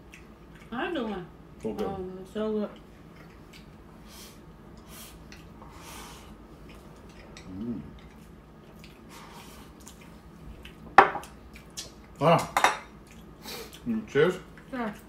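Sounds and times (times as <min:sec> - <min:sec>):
chewing and slurping: 0:00.0 - 0:00.8, 0:02.7 - 0:12.2, 0:13.0 - 0:13.9.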